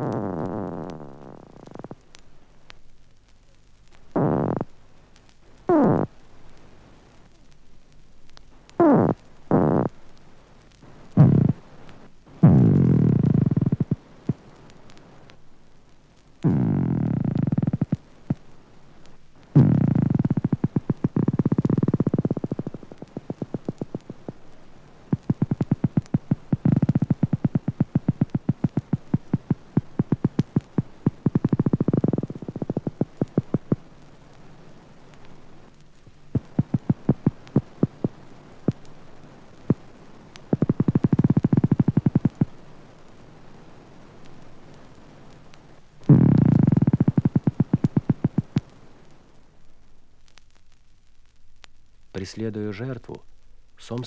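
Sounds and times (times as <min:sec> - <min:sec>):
faint hiss: 0:00.0 - 0:54.0
electric buzzing bursts: 0:16.4 - 0:34.5, 0:35.2 - 0:43.2, 0:44.5 - 0:49.1.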